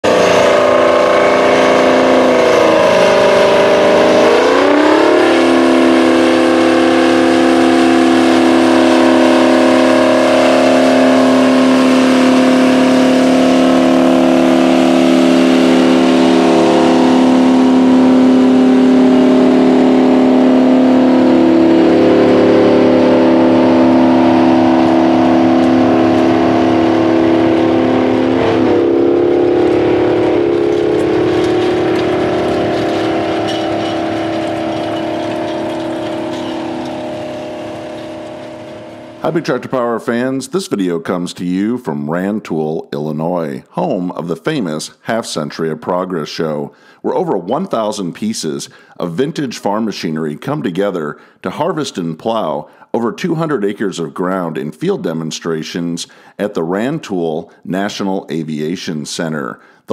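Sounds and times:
diesel tractor engine under load: 0:00.0 - 0:40.3.

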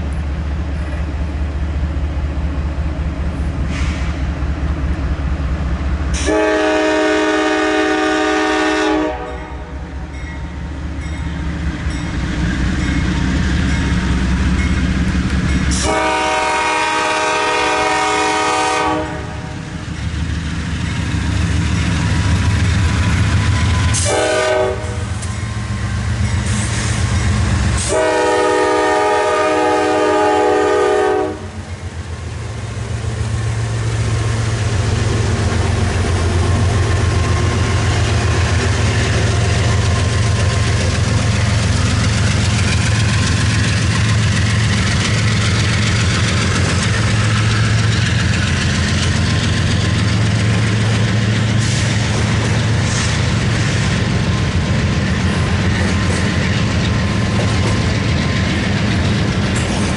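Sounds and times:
train passing rumble: 0:00.0 - 0:59.9
locomotive horn blasts: 0:06.2 - 0:09.7, 0:15.7 - 0:19.6, 0:24.0 - 0:25.2, 0:27.8 - 0:31.6.

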